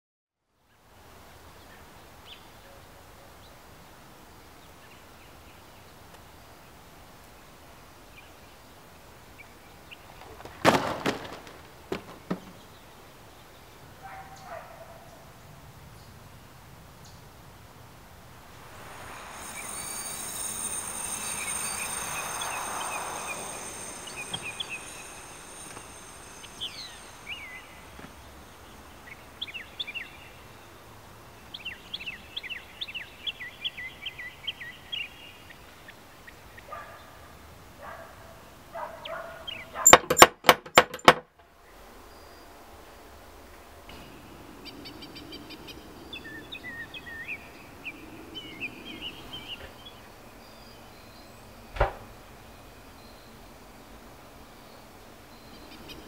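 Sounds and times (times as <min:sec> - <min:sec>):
birds chirping: 0:07.4 - 0:15.3, 0:18.4 - 0:37.1
broad rushing sound: 0:18.2 - 0:30.1.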